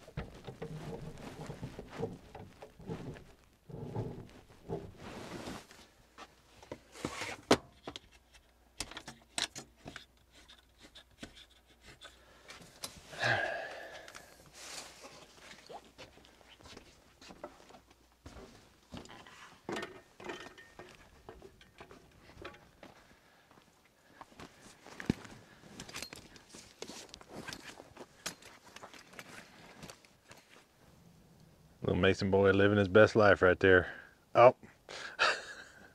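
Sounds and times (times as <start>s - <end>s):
knocks and rustles of camping gear: 0.0s - 11.7s, 17.2s - 23.1s, 24.4s - 30.7s.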